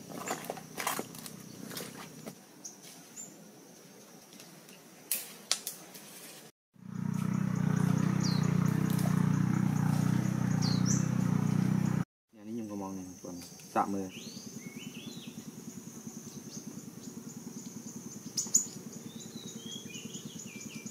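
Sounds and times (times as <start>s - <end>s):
high bird chirps: 7.1s - 12.0s.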